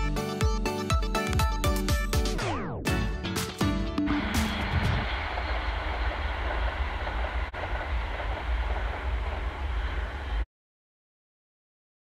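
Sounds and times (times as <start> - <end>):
passenger train passing: 4.1 - 10.5.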